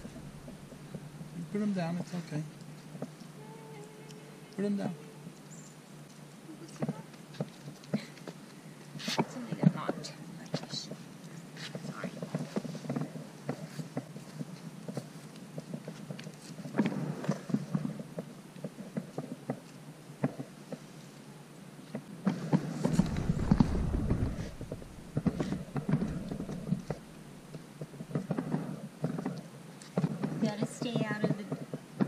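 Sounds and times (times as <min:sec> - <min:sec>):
low rumble: 0:00.0 - 0:01.4, 0:22.9 - 0:27.6
puppy paws pattering on stone: 0:01.8 - 0:21.1, 0:21.9 - 0:31.8.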